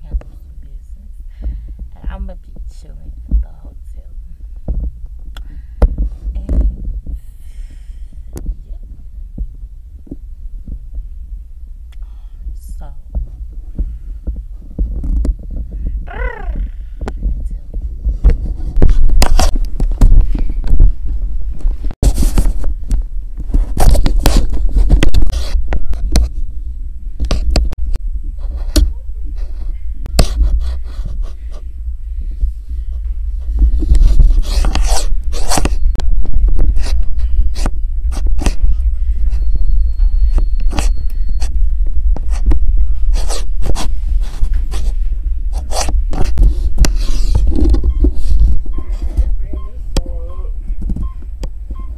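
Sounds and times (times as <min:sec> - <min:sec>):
microphone handling rumble: 0:00.0 - 0:51.9
scrapes and knocks on camera: 0:04.6 - 0:05.1, 0:05.7 - 0:07.2, 0:13.1 - 0:26.5, 0:27.2 - 0:27.8, 0:28.4 - 0:31.7, 0:32.4 - 0:49.7, 0:50.6 - 0:51.9.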